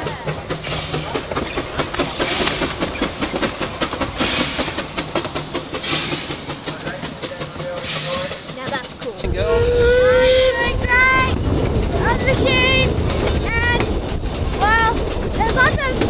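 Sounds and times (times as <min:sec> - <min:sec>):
steam hiss bursts: 0:00.0 - 0:09.2
locomotive wheels knocking and clicking: 0:00.0 - 0:09.6, 0:10.8 - 0:16.0.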